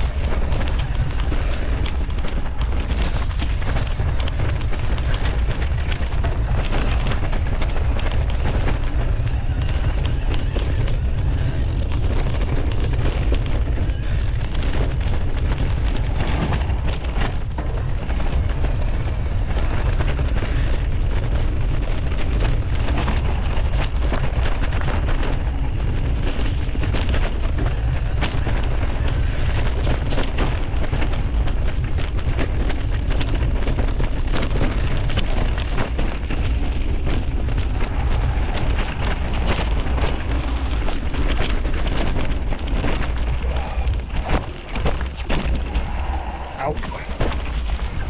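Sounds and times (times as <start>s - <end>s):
bike jolting over rough ground: 0.0s - 48.0s
tyres crackling on gravel: 0.0s - 48.0s
wind on microphone: 0.0s - 48.0s.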